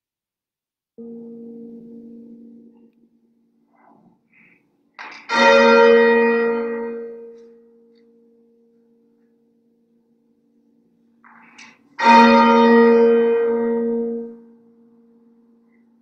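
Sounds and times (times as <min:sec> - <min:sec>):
bell tolling: 0:12.0 - 0:14.1.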